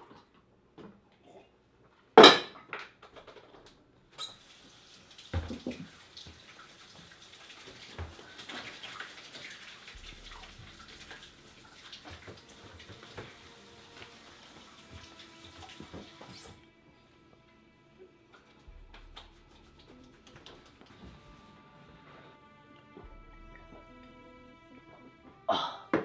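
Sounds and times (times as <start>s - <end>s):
dishes clinking and thumping: 2.2s - 2.8s
plastic jug set down on countertop: 5.3s - 5.9s.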